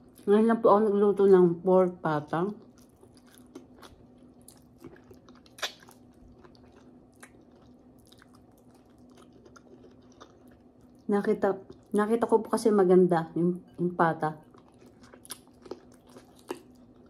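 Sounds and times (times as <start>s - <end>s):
wet chewing mouth noises: 2.6s - 11.9s, 14.5s - 17.0s.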